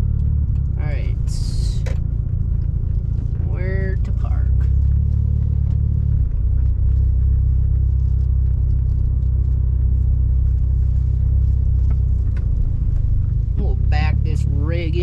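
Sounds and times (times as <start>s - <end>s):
car engine low rumble: 0.0s - 15.0s.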